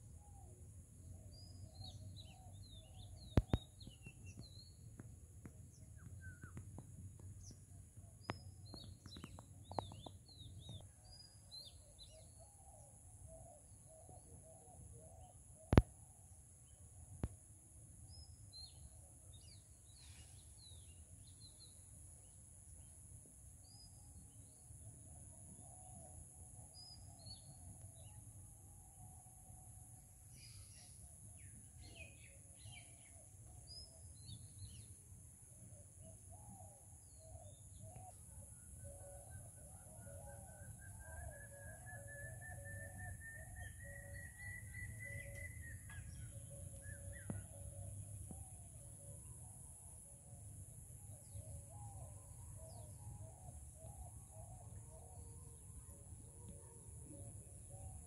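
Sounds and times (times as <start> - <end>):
small birds chirping: 1.4 - 5.0, 5.7 - 11.0.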